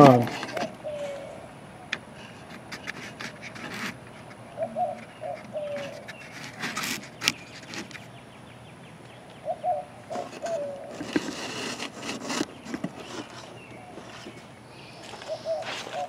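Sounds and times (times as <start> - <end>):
scraping and rubbing: 0.0 - 1.2, 2.2 - 8.1, 10.1 - 14.5
dove cooing: 0.0 - 2.9, 4.2 - 7.1, 9.4 - 16.0.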